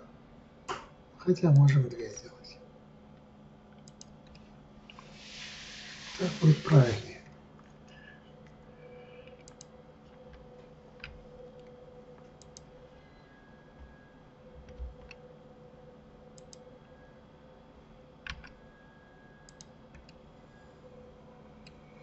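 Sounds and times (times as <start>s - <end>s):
steady low hum: 0.0s - 22.0s
mouse and keyboard clicks: 9.3s - 9.7s.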